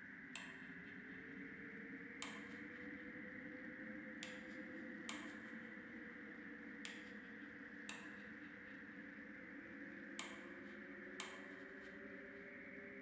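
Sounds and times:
faint steady drone: 0:00.0 - 0:13.0.

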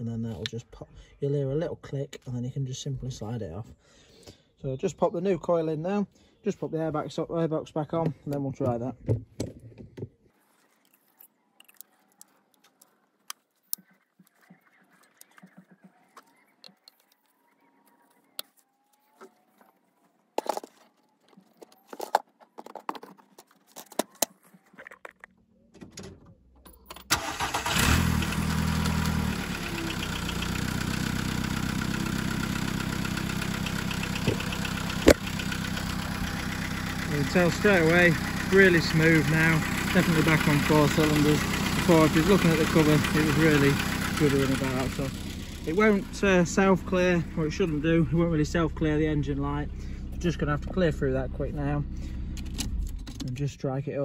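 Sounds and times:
car engine starting and idling: 0:26.3 - 0:53.6.

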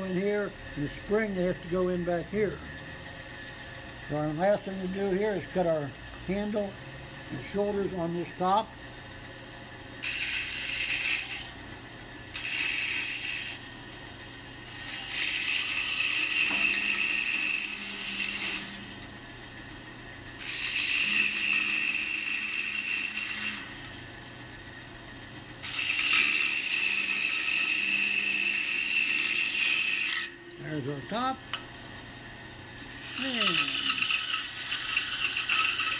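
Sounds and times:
steady low hum: 0:00.0 - 0:35.9
saw blade cutting wood: 0:10.0 - 0:11.6, 0:12.3 - 0:13.7, 0:14.7 - 0:19.0, 0:20.4 - 0:23.9, 0:25.6 - 0:31.4, 0:32.8 - 0:35.9.

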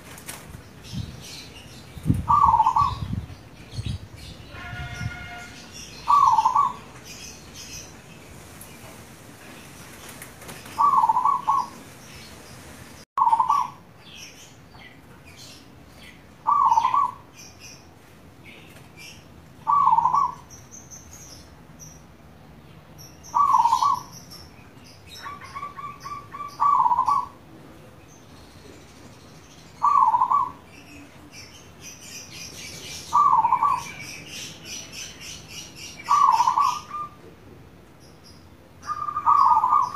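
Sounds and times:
small birds chirping: 0:00.0 - 0:39.9
dove cooing: 0:02.3 - 0:03.1, 0:06.1 - 0:06.9, 0:10.8 - 0:11.8, 0:13.2 - 0:13.8, 0:16.4 - 0:17.2, 0:19.6 - 0:20.4, 0:23.4 - 0:24.1, 0:25.2 - 0:27.4, 0:29.8 - 0:30.6, 0:33.1 - 0:34.0, 0:36.0 - 0:37.2, 0:38.9 - 0:39.9.

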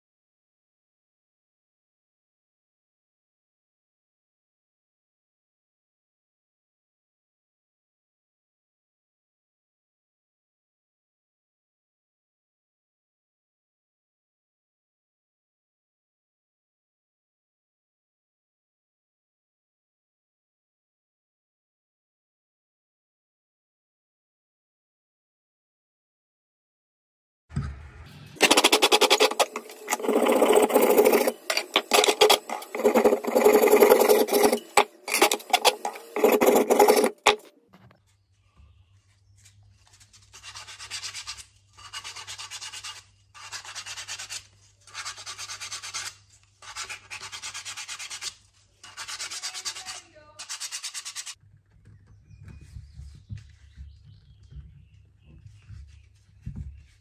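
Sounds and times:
hand sanding strokes: 0:28.4 - 0:37.4, 0:40.2 - 0:51.4
abrasive rasping on lathe: 0:28.4 - 0:37.5.

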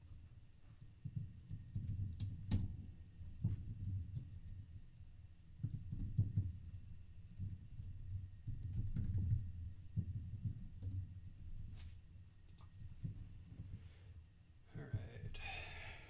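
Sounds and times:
typing on computer keyboard: 0:00.8 - 0:02.8, 0:05.6 - 0:09.5, 0:10.1 - 0:11.0.

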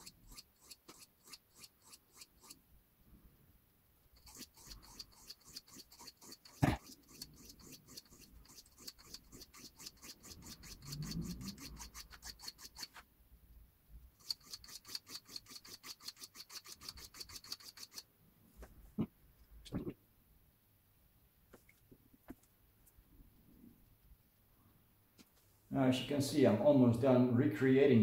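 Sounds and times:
knife scraping on whetstone: 0:00.0 - 0:02.6, 0:04.2 - 0:13.0, 0:14.2 - 0:18.0.

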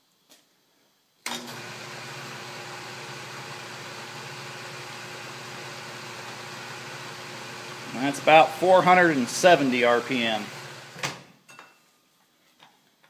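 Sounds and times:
lathe motor hum: 0:01.5 - 0:11.0.

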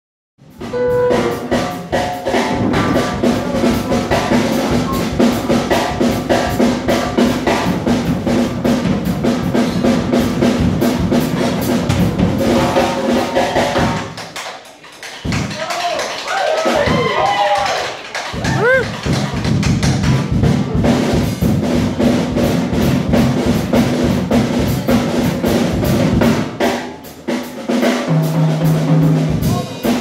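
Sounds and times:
drum kit steady beat: 0:00.4 - 0:30.0
brass instruments: 0:00.5 - 0:14.1.

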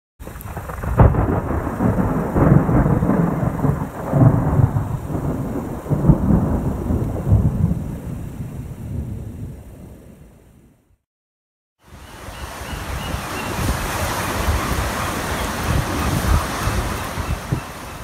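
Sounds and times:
thunder crack: 0:00.2 - 0:10.1
rolling thunder rumbles: 0:00.2 - 0:10.8, 0:13.4 - 0:18.0.

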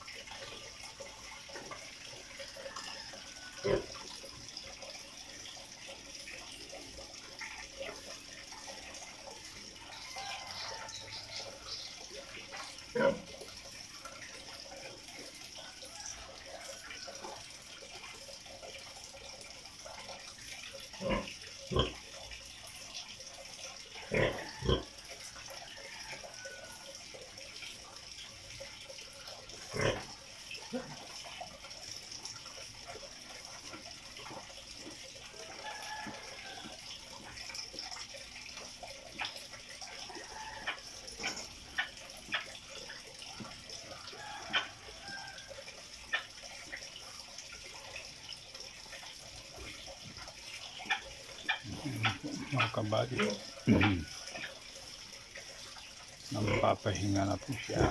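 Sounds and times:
pig grunting: 0:24.1 - 0:24.9, 0:29.7 - 0:30.1, 0:51.6 - 0:54.2, 0:56.3 - 0:56.8.

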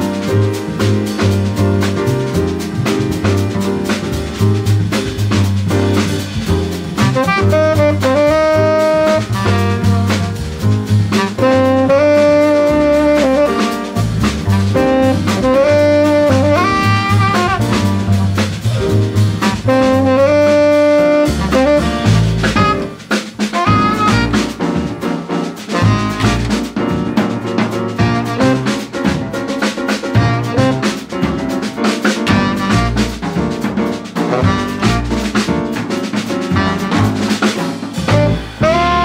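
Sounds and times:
double bass: 0:00.0 - 0:39.0
drum kit: 0:00.0 - 0:39.0
jazz quartet playing: 0:00.0 - 0:39.0
saxophone long notes: 0:38.3 - 0:39.0.

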